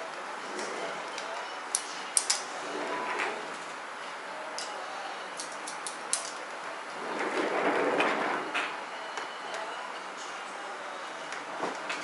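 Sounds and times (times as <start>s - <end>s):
rustling noise: 6.9s - 8.8s.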